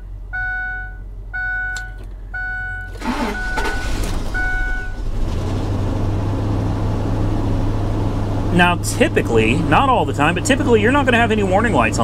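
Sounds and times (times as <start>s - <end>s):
dashboard warning chime dinging: 0.0s - 5.0s
truck engine cranking and idling: 0.0s - 12.0s.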